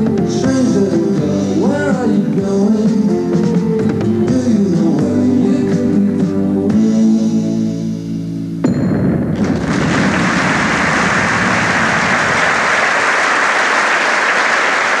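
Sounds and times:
audience applause: 9.5 - 15.0.

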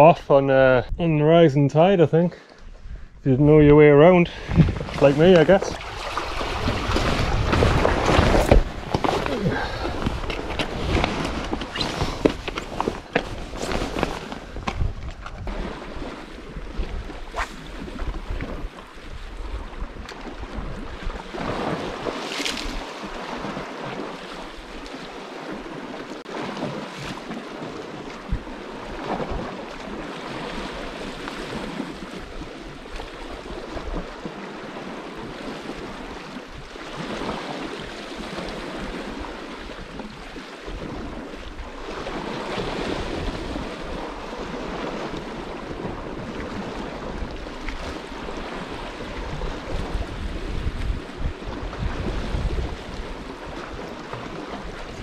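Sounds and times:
wind rumbling on microphone: 2.6 - 55.0
waves washing on rocky shore: 4.4 - 14.8.

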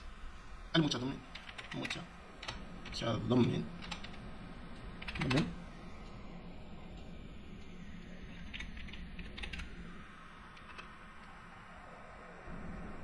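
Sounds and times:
typing on computer keyboard: 1.3 - 3.0, 3.8 - 4.2, 5.0 - 5.5, 8.4 - 9.7.

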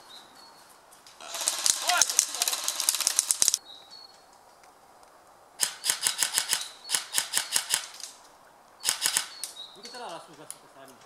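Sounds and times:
airsoft guns firing bursts: 1.2 - 3.6, 5.6 - 8.0, 8.8 - 9.4.

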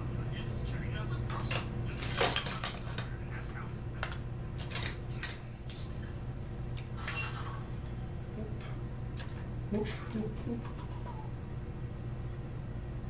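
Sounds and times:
metal parts clinking: 1.5 - 3.1, 4.6 - 5.8.

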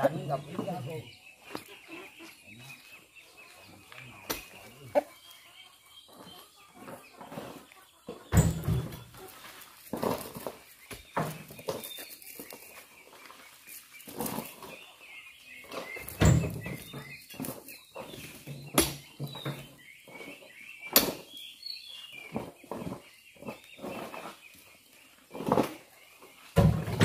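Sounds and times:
birds chirping: 0.0 - 27.0
chickens clucking: 0.0 - 27.0
fruit bunches thudding into truck bed: 8.3 - 9.1, 16.0 - 16.8, 26.6 - 27.0.

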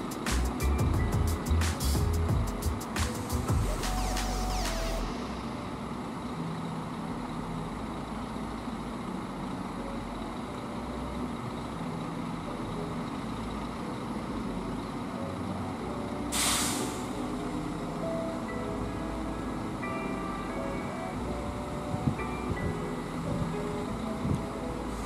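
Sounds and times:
bus engine running: 0.0 - 25.0
air-brake release hiss: 2.8 - 5.5, 16.3 - 17.4.

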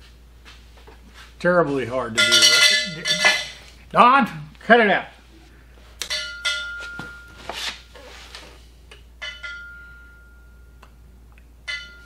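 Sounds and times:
metal object ringing: 2.2 - 3.7, 6.1 - 7.4, 9.2 - 10.8, 11.7 - 12.0.

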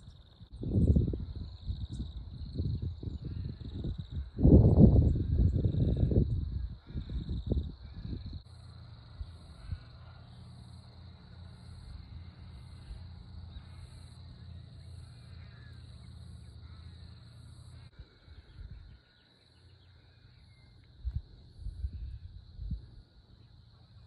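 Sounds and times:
wind rumbling on microphone: 0.0 - 10.0, 17.9 - 19.1, 20.9 - 23.8
faint high pulsing chirr: 0.0 - 24.0
steady high-pitched hum: 0.0 - 24.0.

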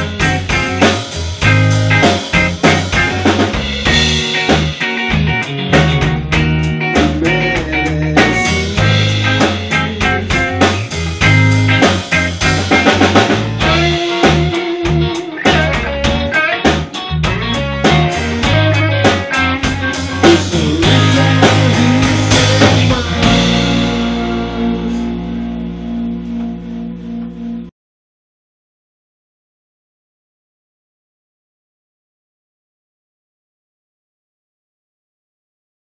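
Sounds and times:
drum kit: 0.0 - 27.4
electric guitar: 0.0 - 27.7.

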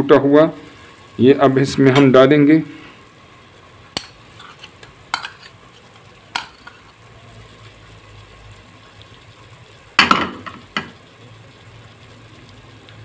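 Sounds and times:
spices sizzling in a pot: 0.0 - 13.0
spoon knocking and scraping: 4.0 - 5.6, 6.3 - 6.9.

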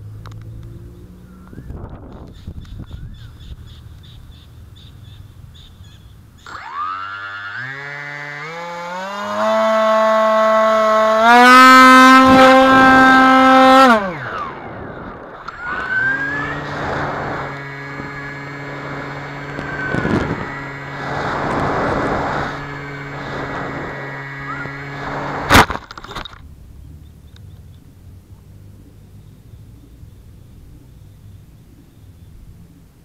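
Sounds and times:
model plane motor and propeller: 5.0 - 28.8
wind gusting: 11.4 - 25.7.

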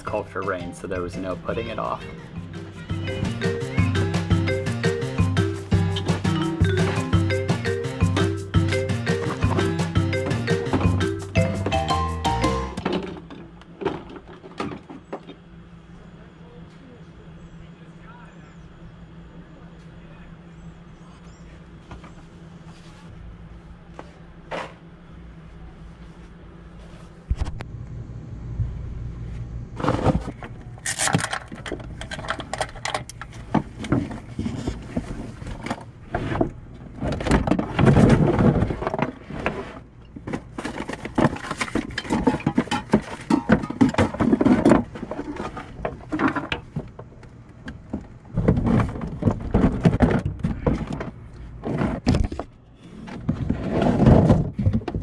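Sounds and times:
items knocking and clattering: 5.2 - 15.4, 29.8 - 55.0.

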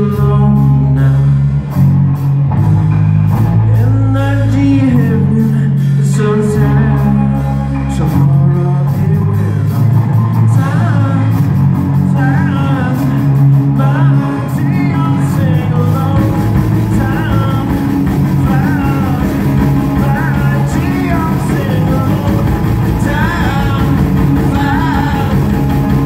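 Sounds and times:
man singing: 0.0 - 1.8, 3.6 - 26.0
live rock band playing: 0.0 - 26.0.

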